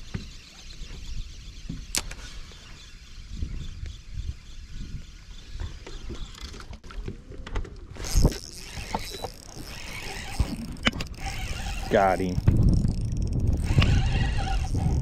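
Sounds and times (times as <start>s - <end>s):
wind buffeting microphone: 0.8s - 6.3s, 7.9s - 15.0s
fishing rod and reel handling: 7.9s - 15.0s.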